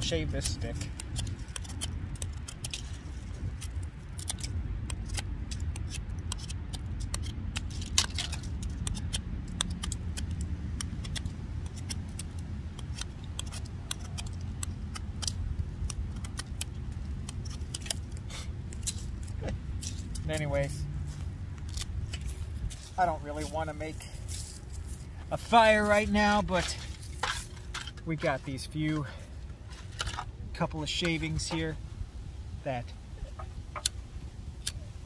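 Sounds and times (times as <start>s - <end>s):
knife scraping wooden stick: 0.0s - 23.7s
low wind rumble on microphone: 0.0s - 25.4s, 26.8s - 35.0s.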